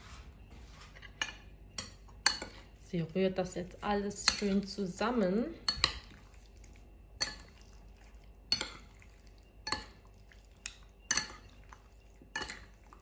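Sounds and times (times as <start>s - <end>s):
utensil clinking against bowl: 4.1s - 4.9s, 5.6s - 6.2s, 8.5s - 13.0s.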